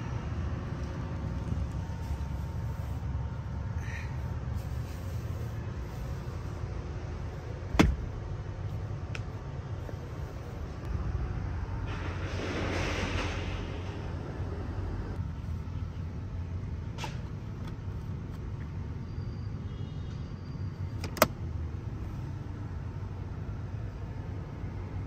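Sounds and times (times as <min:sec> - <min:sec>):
steady low rumble: 0:00.0 - 0:18.2.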